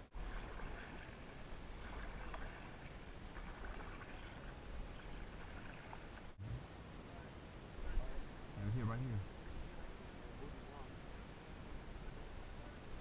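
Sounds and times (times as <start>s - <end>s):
water lapping against hull: 0.0s - 6.4s.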